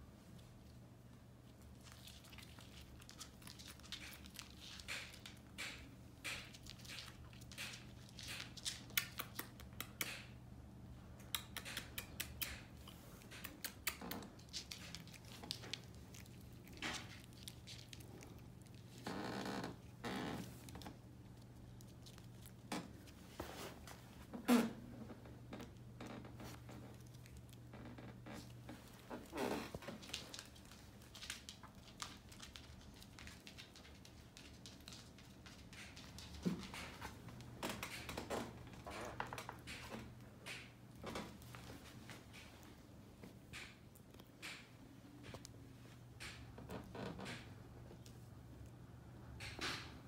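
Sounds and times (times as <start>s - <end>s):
dog claws clicking on wooden floor: 1.8s - 10.4s, 11.2s - 23.1s, 25.6s - 42.7s, 43.4s - 45.6s.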